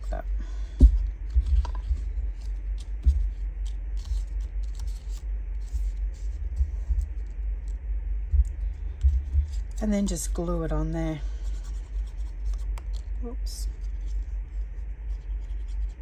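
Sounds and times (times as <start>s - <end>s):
paper crackles: 0.8s - 7.4s.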